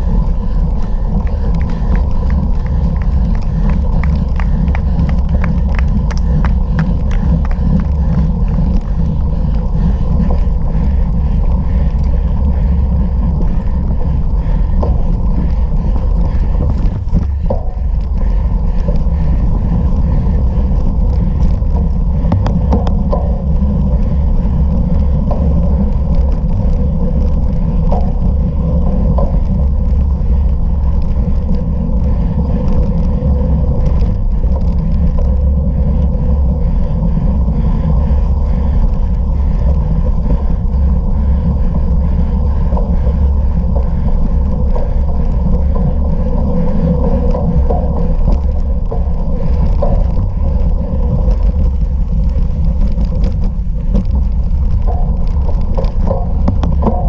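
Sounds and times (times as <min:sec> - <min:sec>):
bicycle clicks and rattles: 0:00.0 - 0:57.0
wind on microphone: 0:00.0 - 0:57.0.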